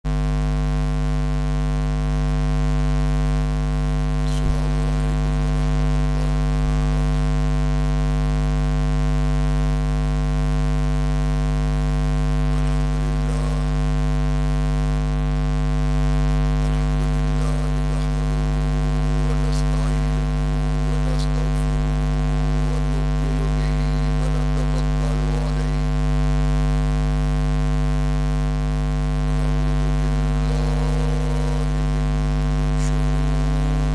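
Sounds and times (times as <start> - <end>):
electrical mains hum: 0.1 - 33.9
faint voices murmuring: 4.2 - 6.4, 16.7 - 18.4, 22.6 - 25.9, 30.4 - 32.1.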